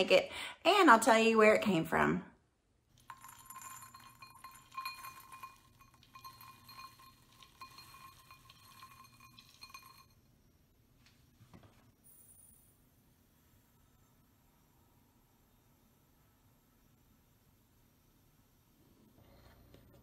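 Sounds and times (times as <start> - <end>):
nut pieces pattering on glass: 3.0 - 10.2
glass bowl ringing: 3.1 - 10.3.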